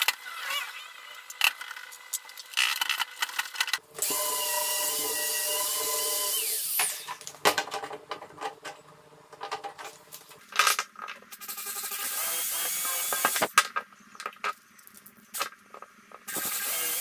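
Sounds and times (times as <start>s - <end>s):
power drill motor whining: 4.0s - 7.1s.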